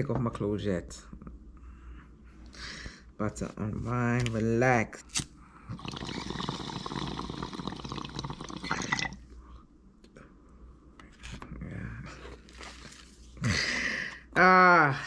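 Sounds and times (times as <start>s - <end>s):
water bubbling in a bong: 5.7s - 9.2s.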